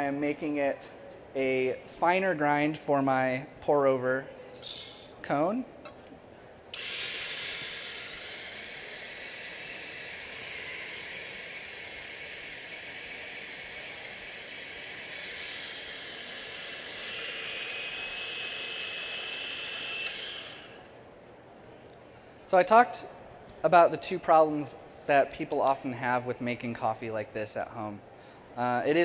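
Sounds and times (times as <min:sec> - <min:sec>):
coffee grinder grinding beans: 0:06.8 - 0:20.9.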